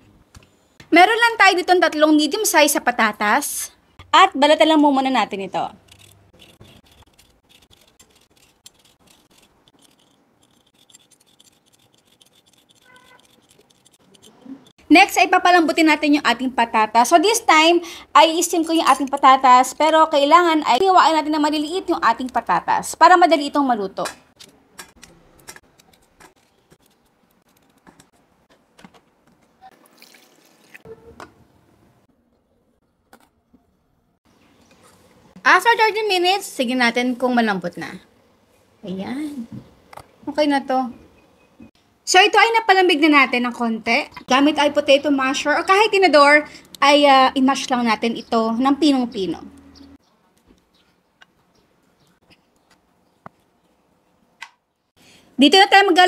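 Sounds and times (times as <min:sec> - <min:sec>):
blade scraping potato skin: 0:05.7 - 0:14.8.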